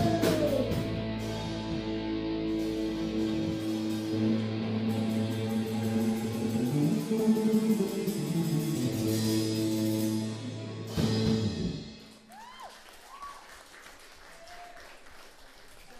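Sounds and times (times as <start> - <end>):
rock band playing: 0.0 - 12.3
faint applause: 12.0 - 15.9.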